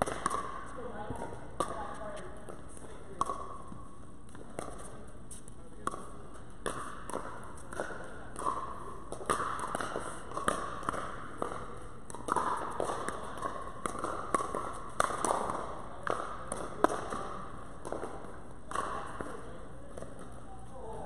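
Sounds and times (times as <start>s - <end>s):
ball bouncing on hard court: 0.0s - 5.1s, 5.7s - 21.0s
paddles striking plastic ball: 2.5s - 3.7s, 5.8s - 20.3s.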